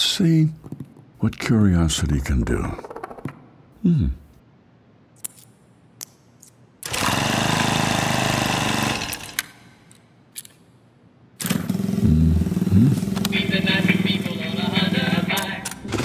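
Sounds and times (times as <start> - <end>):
small engine running: 6.9 - 9.4, 11.4 - 15.3
motorcycle engine starting: 11.4 - 13.3.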